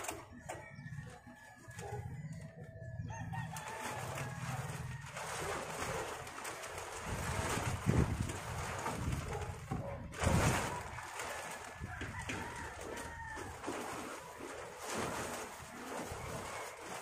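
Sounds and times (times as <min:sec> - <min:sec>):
plastic tarpaulin rustling: 0:00.0 - 0:17.0.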